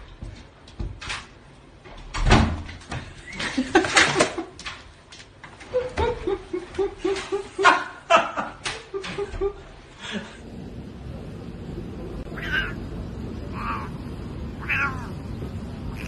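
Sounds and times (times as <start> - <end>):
person laughing: 5.6 - 10.4.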